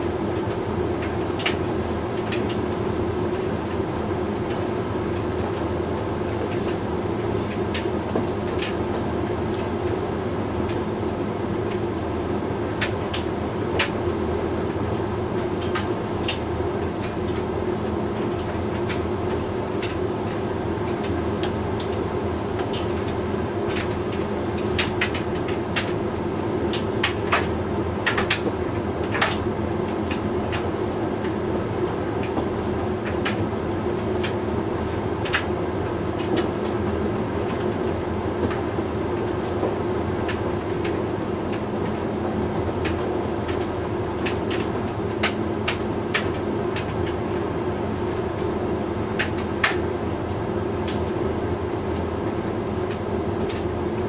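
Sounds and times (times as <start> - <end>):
tumble dryer humming: 0.0 - 54.0
light sharp clicks of tumbling load: 0.3 - 3.8, 6.4 - 10.0, 11.6 - 14.0, 18.1 - 34.6, 35.2 - 47.5, 49.2 - 52.1, 52.8 - 54.0.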